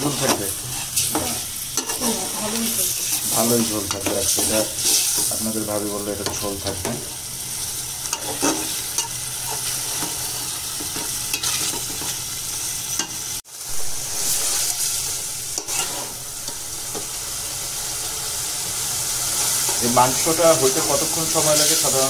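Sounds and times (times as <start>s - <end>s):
chicken sizzling in oily paste: 0.0s - 22.0s
metal spatula scraping pot: 3.9s - 5.3s, 8.0s - 12.2s, 14.1s - 16.6s.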